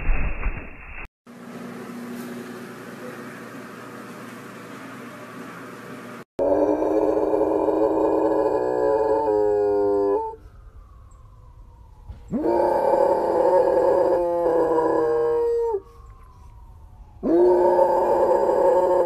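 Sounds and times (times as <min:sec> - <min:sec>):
dog howling: 0:06.4 - 0:10.4, 0:12.3 - 0:16.0, 0:17.2 - 0:19.0.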